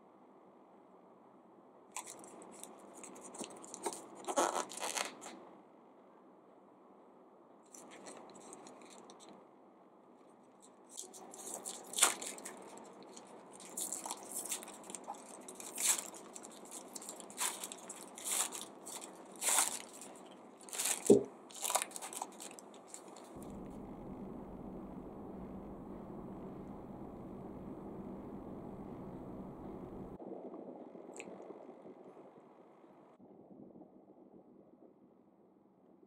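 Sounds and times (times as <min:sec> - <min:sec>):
plastic wrapper crinkling and ripping: 0:02.0 - 0:05.4, 0:07.7 - 0:09.3, 0:10.9 - 0:23.4.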